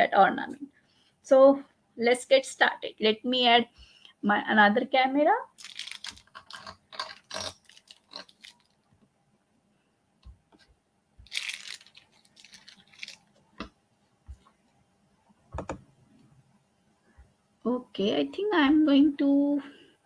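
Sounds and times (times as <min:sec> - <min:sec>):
plastic clicks and rustles: 0:05.6 - 0:09.0, 0:10.2 - 0:13.7.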